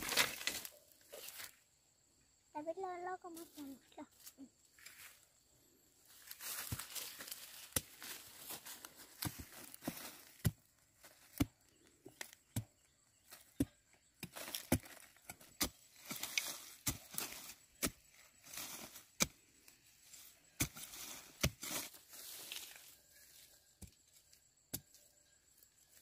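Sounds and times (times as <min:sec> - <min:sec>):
machete chopping into soil: 0:00.0 - 0:00.8, 0:12.1 - 0:19.4, 0:20.6 - 0:22.8.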